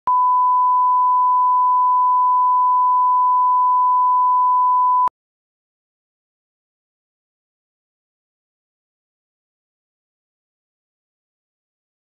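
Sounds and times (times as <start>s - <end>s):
steady test tone beep: 0.1s - 5.1s.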